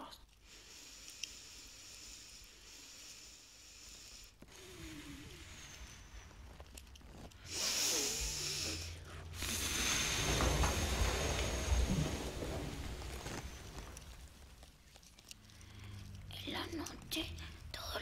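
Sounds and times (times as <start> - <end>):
breath-like hissing noise: 0.4 - 6.6, 7.4 - 14.7
low rumble: 8.1 - 16.5.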